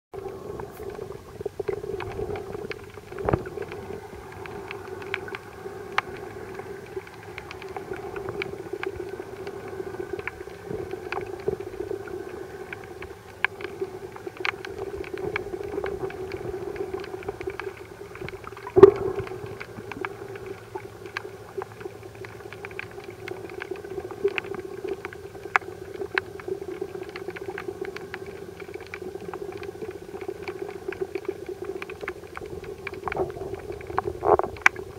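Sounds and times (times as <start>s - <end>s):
underwater low hum: 0.1s - 34.9s
underwater clicks and crackles: 0.2s - 34.9s.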